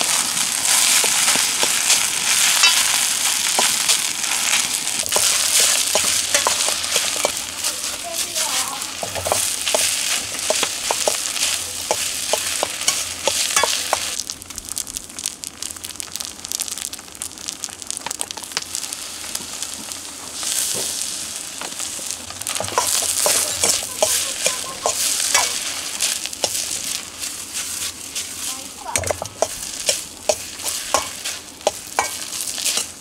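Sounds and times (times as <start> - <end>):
rice sizzling in a wok: 0.0 - 33.0
metal ladle scraping a pan: 1.0 - 3.9, 5.1 - 7.8, 29.0 - 33.0.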